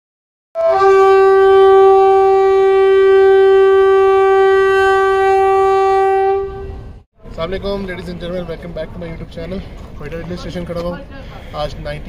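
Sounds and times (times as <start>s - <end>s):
locomotive air horn blast: 0.6s - 7.0s.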